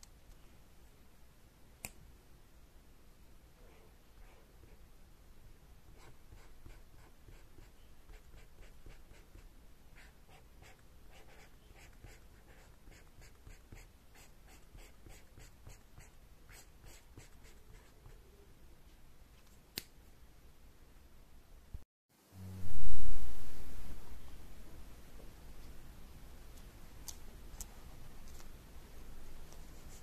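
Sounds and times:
marker pen scratching paper: 5.9s - 18.2s.

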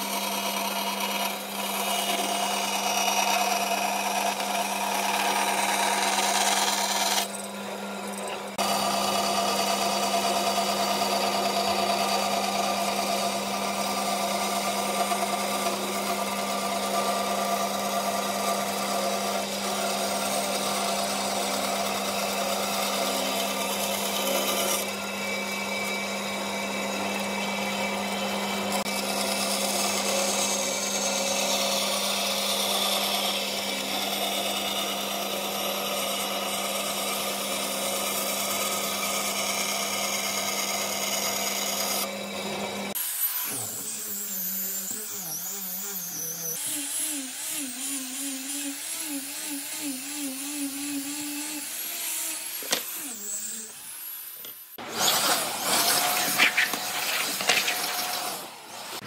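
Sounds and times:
bandsaw cutting wood: 0.0s - 59.0s
disc sander whining: 35.2s - 59.0s.

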